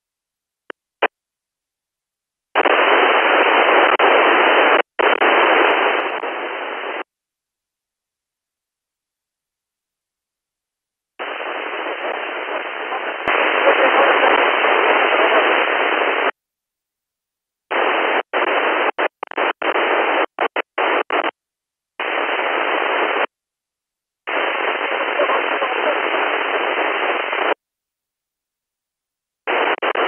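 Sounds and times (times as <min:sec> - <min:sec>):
radio static hiss: 0:02.6 - 0:07.1, 0:11.2 - 0:16.4, 0:17.7 - 0:21.4, 0:22.0 - 0:23.3, 0:24.3 - 0:27.6, 0:29.4 - 0:30.0.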